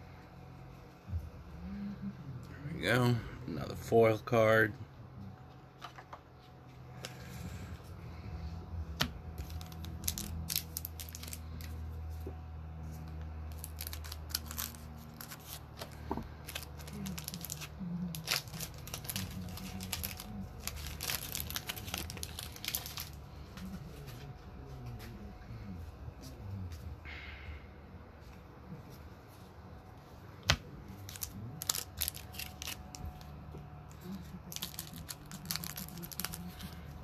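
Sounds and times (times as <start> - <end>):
card pack wrappers tearing and crinkling: 9.0 - 11.9, 13.4 - 23.3, 31.0 - 37.0.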